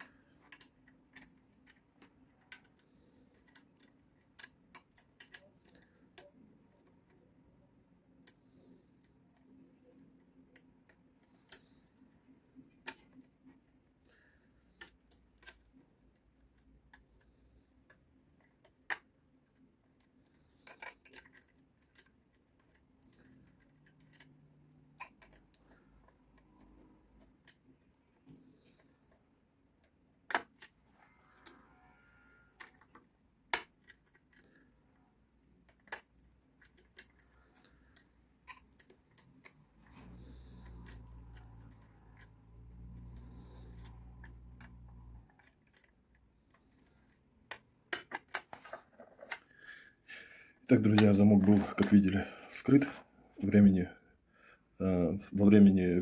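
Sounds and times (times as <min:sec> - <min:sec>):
lock pick clicking and scraping: 0:00.0 - 0:07.3, 0:14.7 - 0:31.6, 0:32.6 - 0:34.7, 0:35.4 - 0:42.4, 0:43.0 - 0:49.5.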